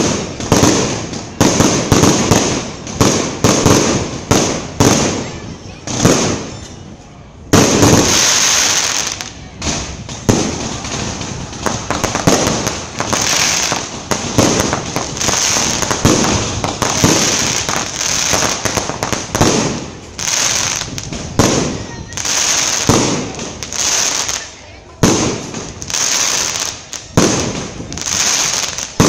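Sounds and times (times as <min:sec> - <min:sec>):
loud firework bangs: 0:00.0 - 0:06.8, 0:07.5 - 0:29.0
crackling aerial fireworks: 0:00.0 - 0:29.0.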